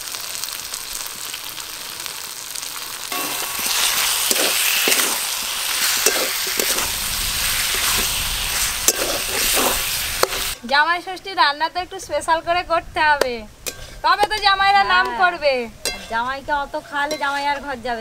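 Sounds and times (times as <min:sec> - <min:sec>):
vegetables sizzling in oil: 0:00.0 - 0:18.0
spatula scraping pan: 0:03.1 - 0:10.8, 0:13.6 - 0:16.2.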